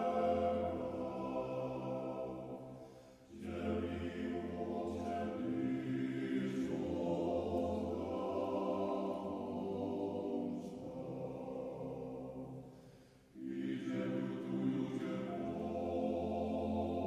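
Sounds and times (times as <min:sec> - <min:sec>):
choir singing a chant: 0:00.0 - 0:17.0.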